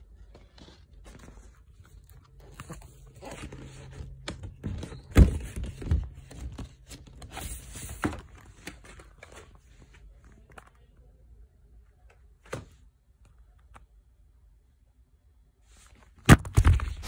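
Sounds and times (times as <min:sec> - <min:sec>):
packaging rustling and crinkling: 0:00.2 - 0:10.6.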